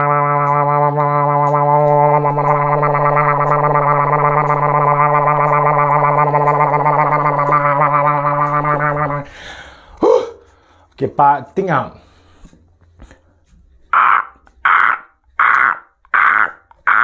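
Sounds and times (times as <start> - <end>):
man droning with his mouth: 0.0 - 10.5, 13.9 - 17.0.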